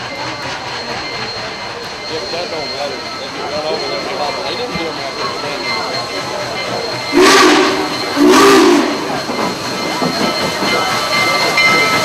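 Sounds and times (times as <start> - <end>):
steam locomotive drawing in: 0.0 - 12.0
steam whistle blasts: 7.1 - 9.3.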